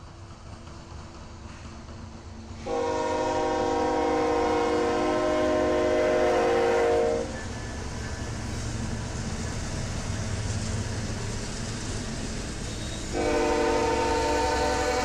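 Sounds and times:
freight train engines rumbling: 0:00.0 - 0:15.0
locomotive air horn: 0:02.6 - 0:07.4, 0:13.1 - 0:15.0.

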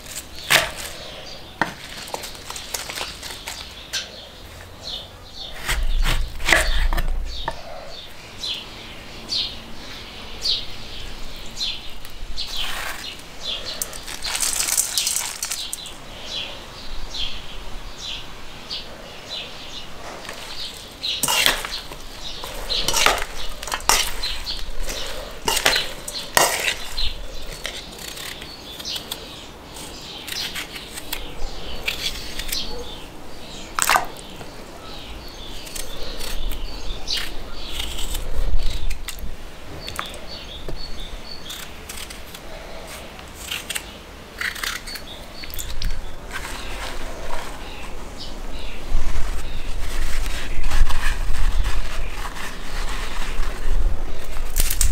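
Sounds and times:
salad leaves rustling: 0:00.0 - 0:09.0, 0:09.8 - 0:17.6, 0:19.4 - 0:39.2, 0:39.8 - 0:54.9
metal utensil scraping bowl: 0:20.2 - 0:28.9.

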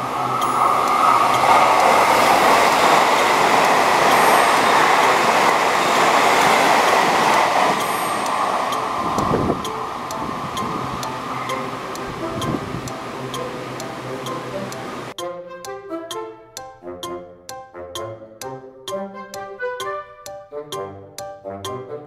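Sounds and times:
train passing at speed: 0:00.0 - 0:15.2.

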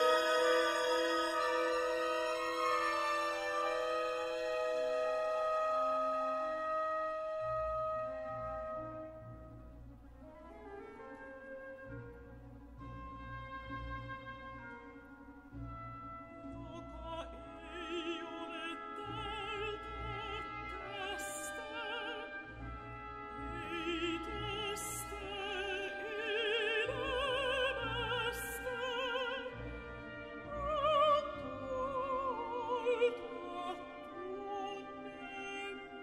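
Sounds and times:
woman singing with vibrato: 0:00.0 - 0:03.9, 0:16.6 - 0:22.5, 0:23.4 - 0:29.7, 0:30.5 - 0:36.0
soft orchestral accompaniment: 0:00.0 - 0:36.0.

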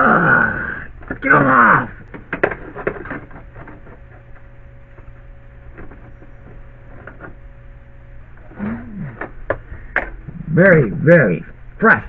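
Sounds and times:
steady low hum: 0:00.0 - 0:12.0
hands tapping and scraping plastic: 0:02.0 - 0:07.4.

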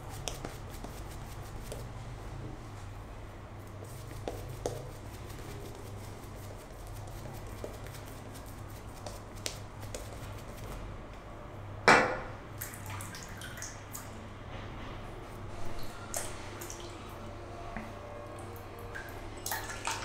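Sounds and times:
shaving brush lathering on face: 0:00.0 - 0:01.9, 0:03.7 - 0:10.8
water splashing at sink: 0:12.6 - 0:14.2.

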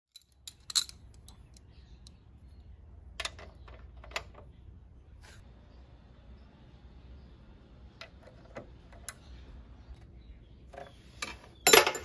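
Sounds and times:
metal hand tools clinking: 0:00.1 - 0:01.4.

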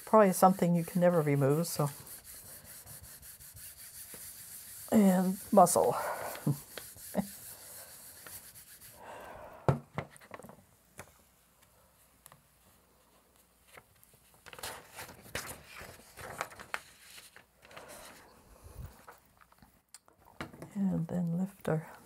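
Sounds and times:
baren rubbing over paper: 0:00.0 - 0:09.0
paper rustling: 0:13.3 - 0:18.3.

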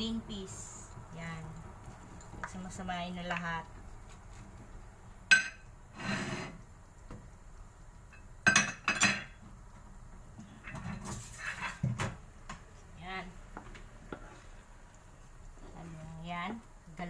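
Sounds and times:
ceramic dishes clinking: 0:05.3 - 0:05.7, 0:08.2 - 0:09.4.

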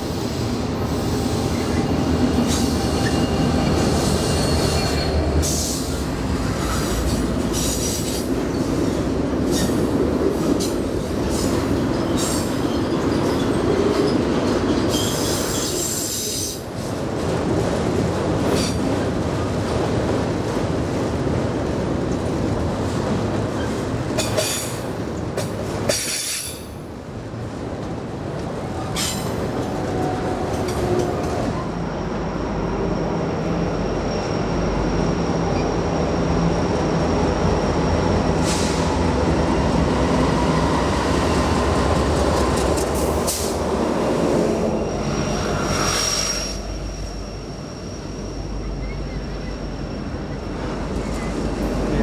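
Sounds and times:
rail cars clicking over track: 0:00.0 - 0:32.5, 0:33.2 - 0:52.0
diesel locomotive engine drone: 0:00.0 - 0:52.0
high wheel squeal: 0:01.5 - 0:05.9, 0:44.5 - 0:51.4.

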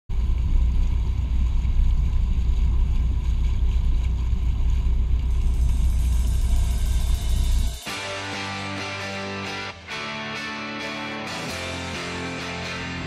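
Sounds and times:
boat engine rumble: 0:00.1 - 0:07.9.

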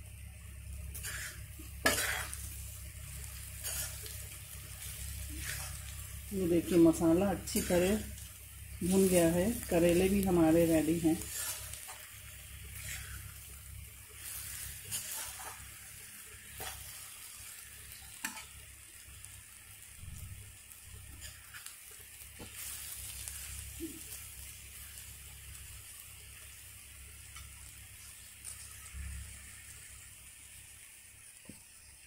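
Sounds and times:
food sizzling in oil: 0:00.0 - 0:32.0
metal spatula scraping a pan: 0:00.9 - 0:06.0, 0:07.3 - 0:08.2, 0:11.2 - 0:12.1, 0:12.7 - 0:13.3, 0:14.2 - 0:15.7, 0:16.5 - 0:17.1, 0:17.9 - 0:18.5.

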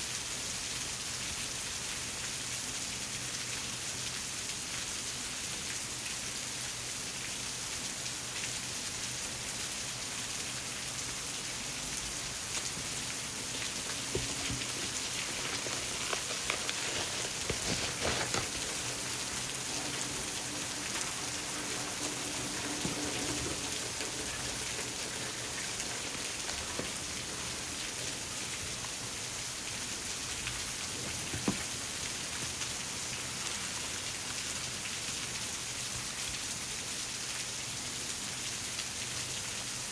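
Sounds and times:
steady hiss: 0:00.0 - 0:39.9
cardboard box crinkles and taps: 0:13.5 - 0:28.2, 0:31.0 - 0:31.8.

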